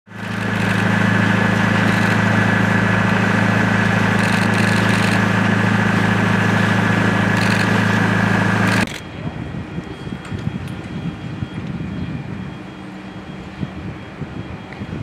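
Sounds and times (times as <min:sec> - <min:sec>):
boat engine idling hum: 0:00.1 - 0:08.9.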